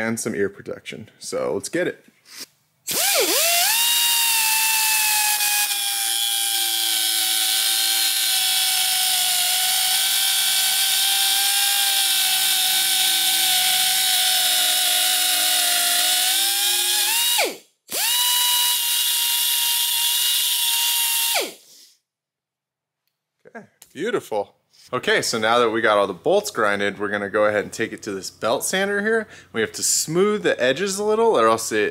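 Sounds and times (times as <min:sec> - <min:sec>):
air angle grinder whining: 0:02.9 - 0:21.9.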